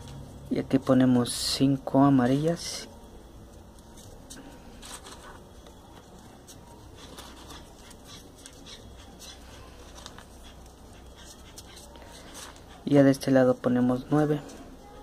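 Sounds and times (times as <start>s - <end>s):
low steady hum: 0.0s - 15.0s
paper rustling and clicking: 9.8s - 10.4s.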